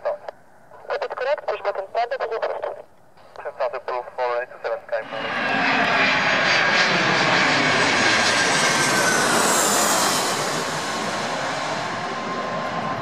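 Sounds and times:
jet airliner passing overhead: 4.1s - 13.0s.

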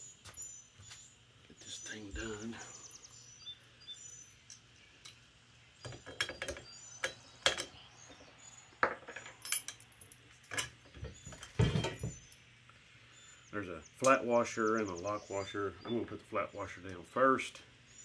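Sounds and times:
metal hardware clinking: 8.8s - 12.4s.

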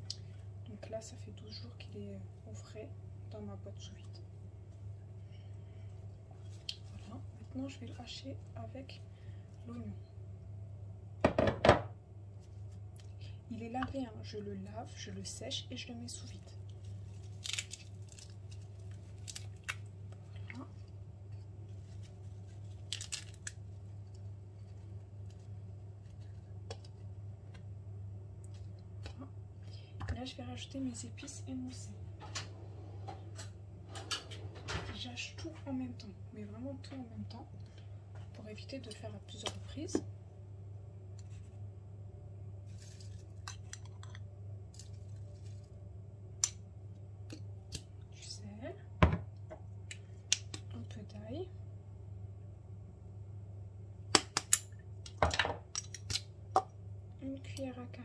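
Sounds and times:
steady low hum: 0.0s - 58.0s
parsley rustling and crinkling: 6.3s - 9.0s, 16.0s - 27.1s, 42.6s - 45.9s.

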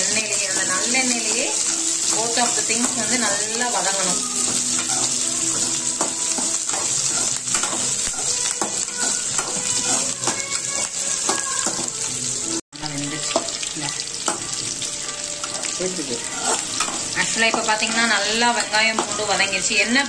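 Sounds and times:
shallots and garlic sizzling in oil: 0.0s - 20.0s
metal spatula scraping pan: 15.4s - 19.6s.

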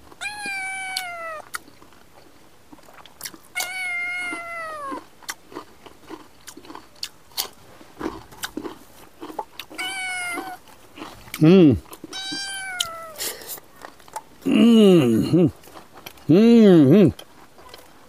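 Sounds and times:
crunching and chewing cucumber: 0.0s - 18.0s
cat meowing: 0.2s - 1.5s, 3.5s - 5.0s, 9.8s - 10.6s, 12.1s - 13.2s.

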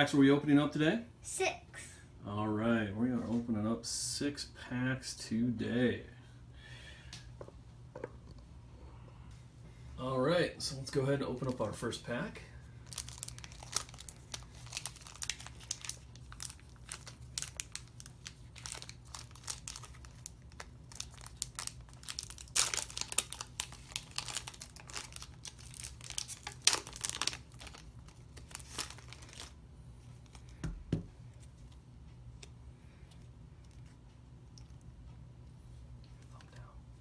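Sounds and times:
foil pack tearing and crinkling: 12.8s - 29.6s.

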